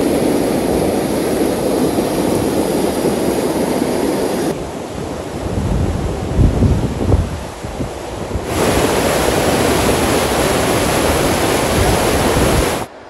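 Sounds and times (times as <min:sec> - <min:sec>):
water rushing down ravine: 0:00.0 - 0:04.6, 0:07.2 - 0:12.9
whitewater rapids rushing: 0:00.0 - 0:04.9, 0:08.4 - 0:13.0
wind buffeting microphone: 0:00.0 - 0:12.9.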